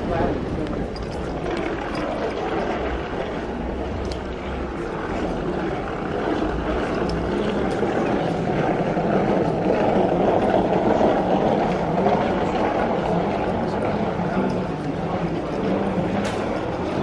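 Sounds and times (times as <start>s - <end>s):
murmur of busy hall: 0.0s - 17.0s
suitcase rolling on tiled floor: 0.1s - 17.0s.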